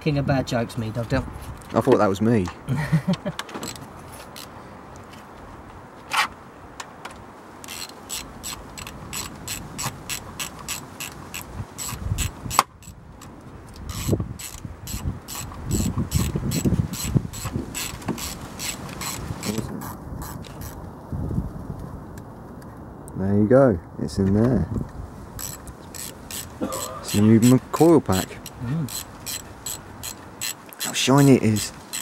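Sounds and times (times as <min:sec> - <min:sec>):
socket ratchet clicking: 0:07.6 - 0:13.0, 0:13.8 - 0:19.6, 0:25.4 - 0:27.6, 0:28.2 - 0:32.0.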